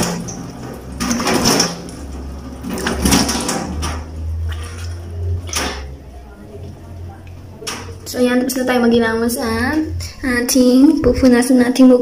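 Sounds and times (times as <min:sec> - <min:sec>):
hands splashing and rubbing face: 0:00.0 - 0:06.0
low steady hum: 0:00.0 - 0:12.0.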